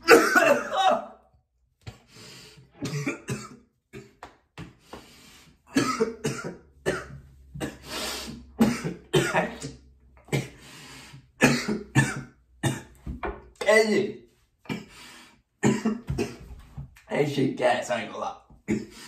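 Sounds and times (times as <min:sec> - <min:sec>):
man coughing: 0:00.0 - 0:01.1, 0:02.8 - 0:04.2, 0:05.7 - 0:07.8, 0:08.6 - 0:10.6, 0:11.4 - 0:12.9, 0:15.6 - 0:16.4, 0:18.7 - 0:19.0.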